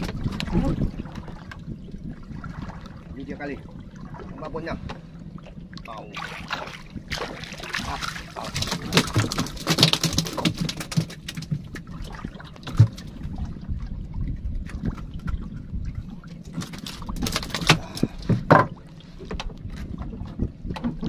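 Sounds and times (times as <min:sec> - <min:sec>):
water slapping against boat hull: 0:00.0 - 0:21.0
knocks on wooden boat: 0:18.3 - 0:18.8.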